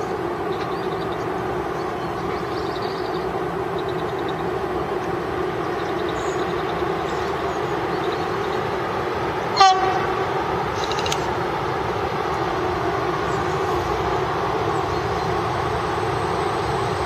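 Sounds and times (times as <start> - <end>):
freight train rumbling past: 0.0 - 17.0
locomotive horn blast: 9.5 - 11.2.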